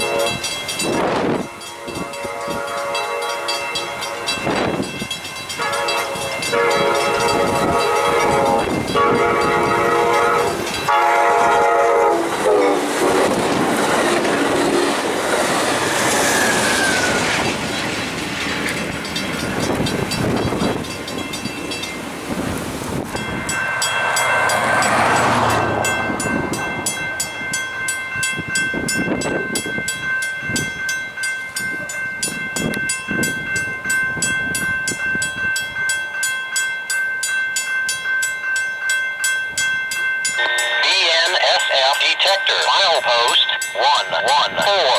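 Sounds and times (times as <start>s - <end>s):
train horn blasts: 0.0s - 0.5s, 1.3s - 4.6s, 5.6s - 13.3s, 40.4s - 40.9s
railroad crossing bell ringing: 0.0s - 44.9s
rushing wind and train noise: 0.0s - 44.9s.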